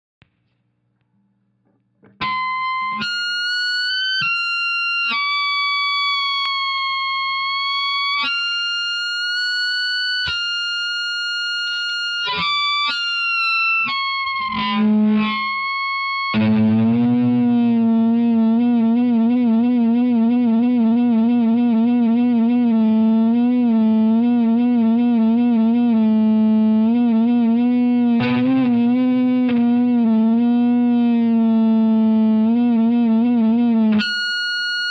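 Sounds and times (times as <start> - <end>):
low buzzing wobbling tone: 16.4 - 34.0
held high amplified tones: 28.2 - 30.2.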